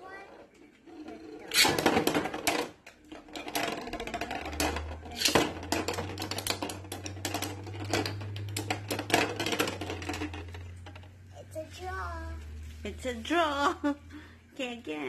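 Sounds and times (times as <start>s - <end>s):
low steady hum: 0.0s - 15.0s
spinning tops clicking and rattling: 0.8s - 11.1s.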